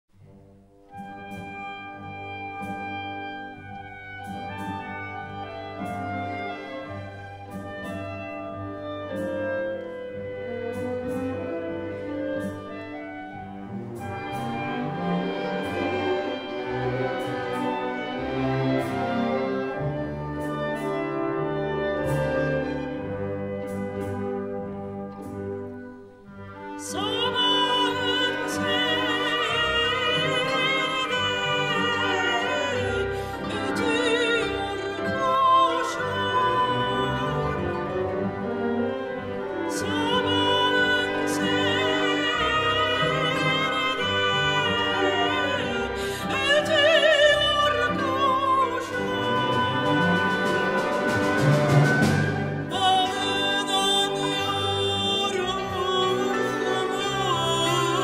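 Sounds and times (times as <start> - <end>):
orchestra playing slow music: 0.2 - 58.0
soprano singing with vibrato: 26.6 - 38.4, 39.1 - 51.4, 52.3 - 58.0.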